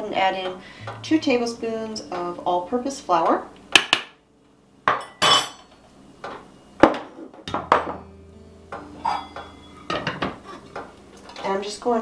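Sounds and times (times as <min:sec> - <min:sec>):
utensils clinking: 0:04.9 - 0:07.9, 0:08.8 - 0:11.6.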